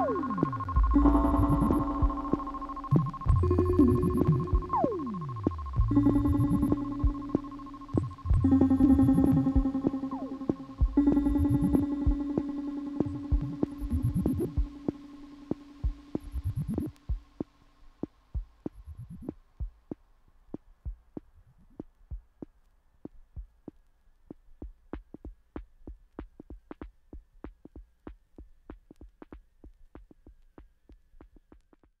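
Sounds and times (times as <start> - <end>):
faint steady high tone: 0.0 - 17.0
synthesized percussive pulses: 0.0 - 17.5.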